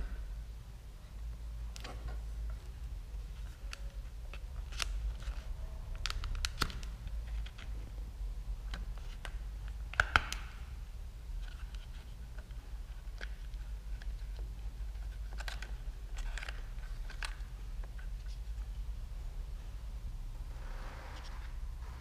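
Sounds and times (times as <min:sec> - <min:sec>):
small plastic clicks and knocks: 0:08.7 - 0:10.6.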